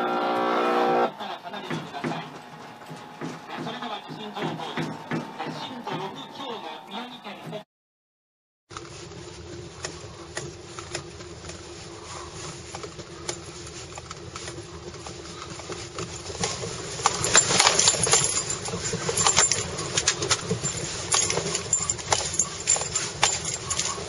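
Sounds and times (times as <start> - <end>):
rattling and clattering inside car: 8.7 - 24.0.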